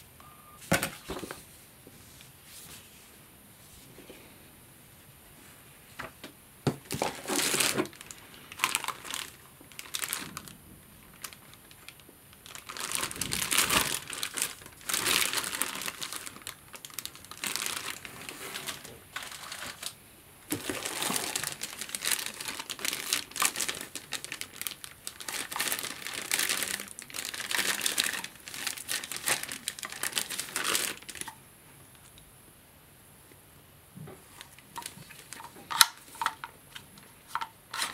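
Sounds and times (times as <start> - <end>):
plastic bags crinkling: 6.8 - 31.4, 34.2 - 37.9.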